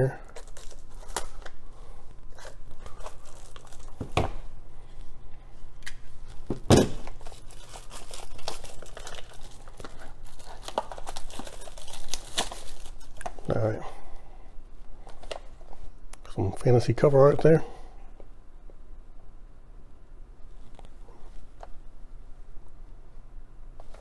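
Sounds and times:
shrink-wrap crinkling: 0.0 - 5.2, 5.8 - 13.8
plastic wrap snapping: 6.6 - 13.5.

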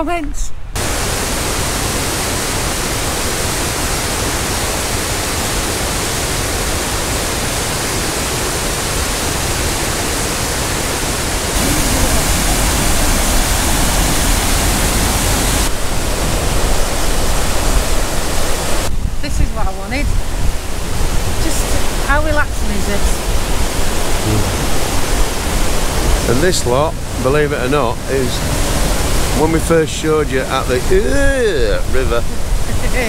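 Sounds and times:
water rushing over rocks: 0.8 - 33.0.

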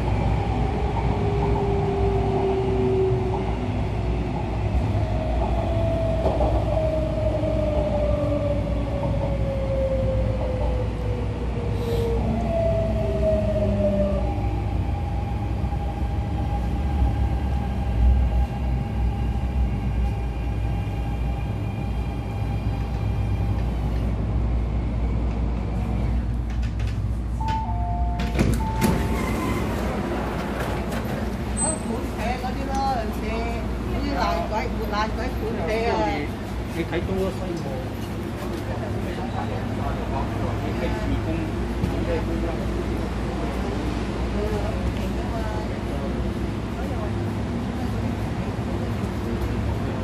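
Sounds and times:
train running gear rumble: 0.0 - 50.0
doors unlocking and sliding open: 26.8 - 31.8.

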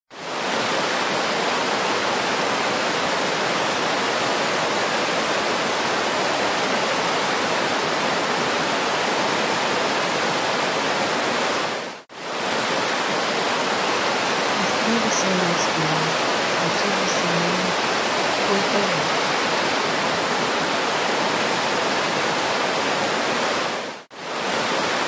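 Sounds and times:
water rushing over rocks: 0.1 - 25.0.

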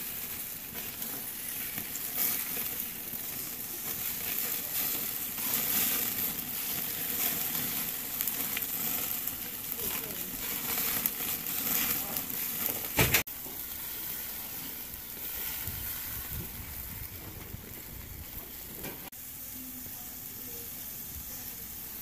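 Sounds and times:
meat sizzling on a charcoal grill: 0.0 - 22.0.

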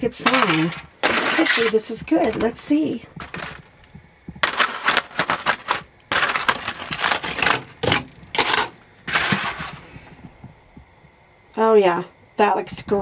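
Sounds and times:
aluminium foil crinkling: 0.0 - 2.6, 3.2 - 9.9.

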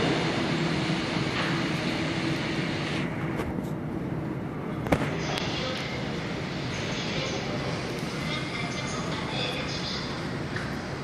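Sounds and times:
subway train rolling rumble: 0.0 - 11.0.

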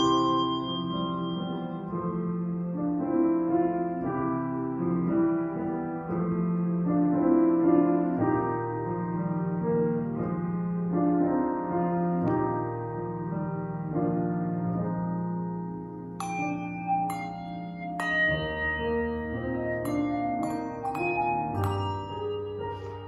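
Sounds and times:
handbells playing slow tune: 0.0 - 2.2, 16.2 - 23.0.

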